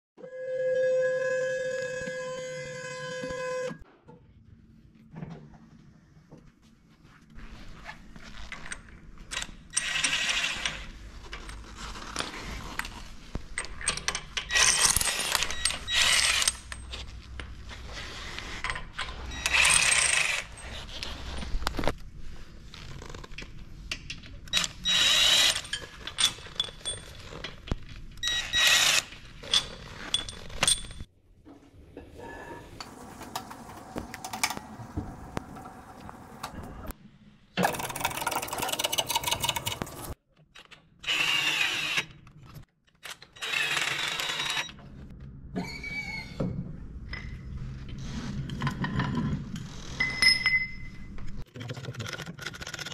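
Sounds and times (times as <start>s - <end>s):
metal clinks of bolts and tools: 50.0s - 51.0s.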